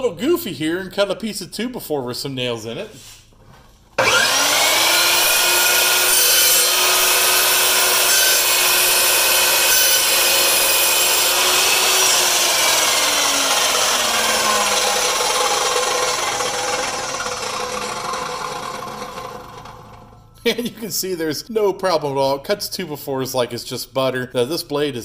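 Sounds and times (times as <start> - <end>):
chop saw cutting wood: 4.0 - 19.9
saw motor winding down: 4.0 - 20.3.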